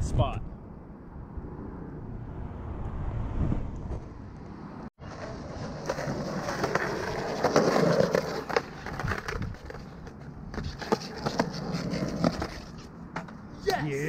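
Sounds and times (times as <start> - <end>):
skateboard wheels rolling on concrete: 2.6 - 14.0
skateboard sliding along curb: 5.0 - 14.0
skateboard clacks: 5.8 - 13.8.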